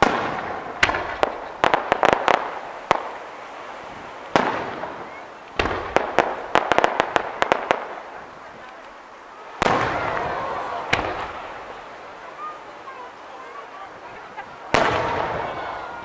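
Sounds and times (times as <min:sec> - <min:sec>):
sharp pops and crackles: 0:00.0 - 0:03.3, 0:04.2 - 0:09.0, 0:10.9 - 0:11.8
firework shells booming: 0:00.0 - 0:08.8, 0:09.5 - 0:11.8, 0:14.7 - 0:15.8.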